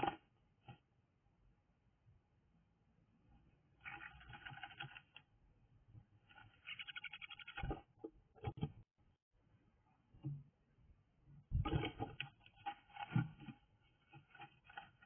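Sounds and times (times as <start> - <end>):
bird scratching nest material: 12.5 - 15.0.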